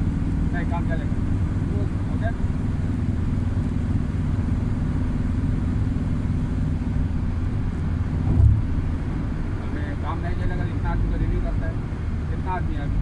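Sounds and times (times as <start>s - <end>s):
road and engine rumble: 0.0s - 13.0s
low thump: 8.2s - 8.9s.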